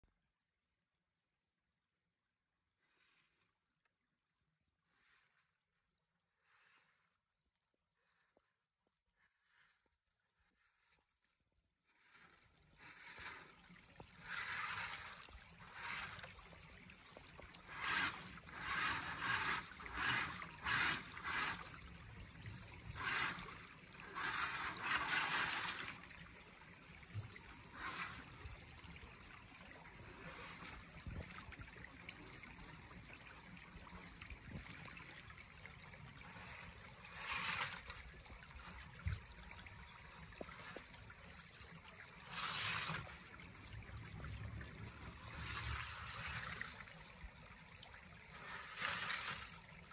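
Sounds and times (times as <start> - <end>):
creek trickling over rocks: 9.1 - 49.9
toy truck wheels splashing water: 12.0 - 49.9.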